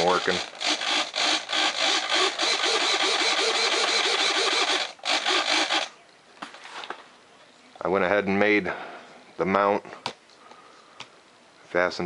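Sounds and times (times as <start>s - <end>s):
servos buzzing whir: 0.0s - 5.9s.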